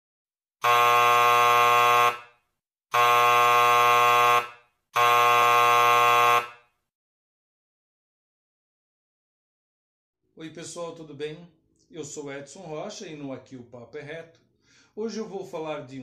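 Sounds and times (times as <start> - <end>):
theatre buzzer: 0.6 - 6.7.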